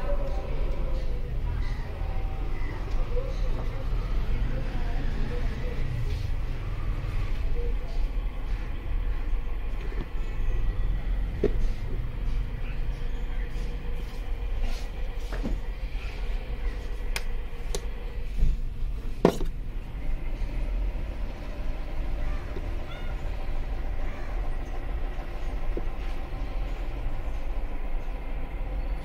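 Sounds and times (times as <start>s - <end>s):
steady low rumble: 0.0s - 29.0s.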